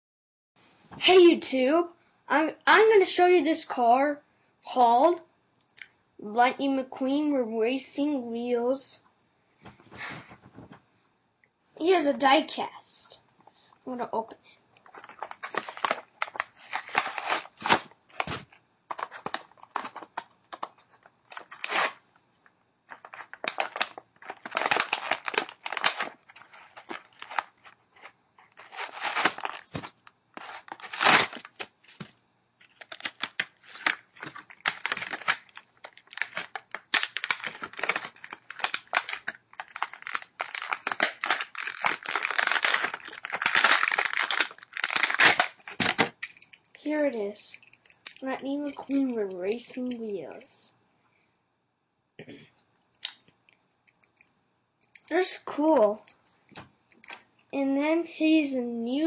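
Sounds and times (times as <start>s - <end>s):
plastic blister crinkling: 14.8s - 22.0s, 22.9s - 50.6s
cardboard ripping: 15.0s - 20.1s, 21.3s - 22.0s, 23.0s - 32.1s, 33.0s - 46.1s.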